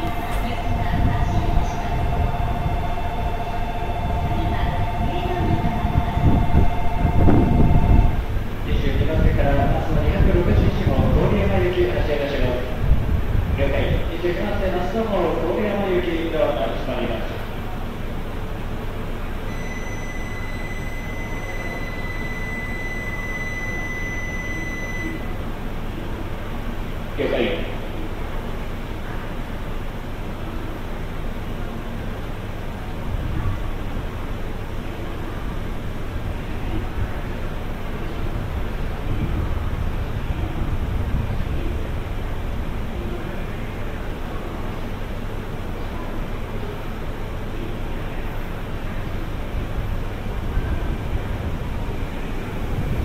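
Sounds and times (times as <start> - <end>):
pulsing pair of tones: 0.0 - 8.3, 19.5 - 25.4
train low rumble: 0.0 - 53.0.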